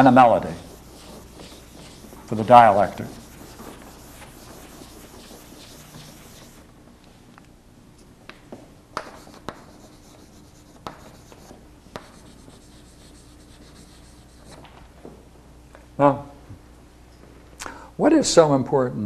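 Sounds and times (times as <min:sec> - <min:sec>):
chalk scratching: 0:00.0 - 0:06.6, 0:09.0 - 0:14.6
chalk tapping on chalkboard: 0:00.0 - 0:06.6, 0:09.0 - 0:14.6.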